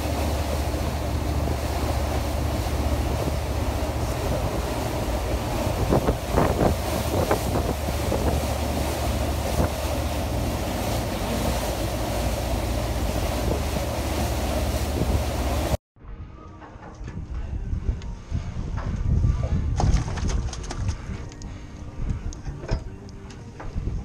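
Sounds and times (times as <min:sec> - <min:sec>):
boat engine droning: 0:00.0 - 0:15.8
rushing water: 0:00.0 - 0:15.8
wind buffeting microphone: 0:00.0 - 0:16.4, 0:17.0 - 0:24.0.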